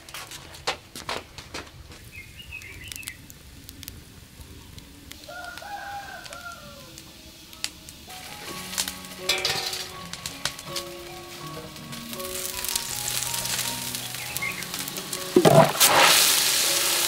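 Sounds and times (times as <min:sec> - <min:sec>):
small birds chirping: 0:02.0 - 0:03.8, 0:12.3 - 0:14.9
background music: 0:07.8 - 0:17.0
burst of hiss: 0:12.2 - 0:17.0.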